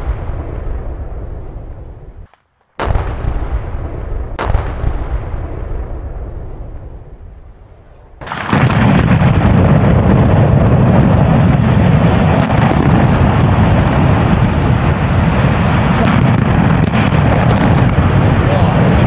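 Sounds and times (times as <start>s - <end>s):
sharp cracks: 2.2s - 5.6s, 8.2s - 10.3s, 11.6s - 14.5s, 15.6s - 18.4s
deep rumble of towers collapsing: 2.8s - 19.0s.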